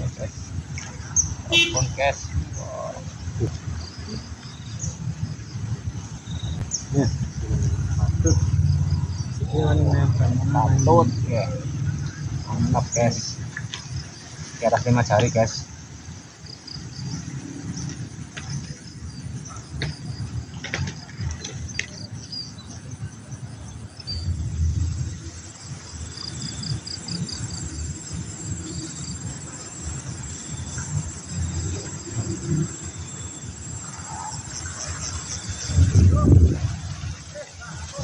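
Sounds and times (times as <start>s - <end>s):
insects chirping in pulses: 0.0s - 38.0s
low rumble: 6.5s - 12.9s.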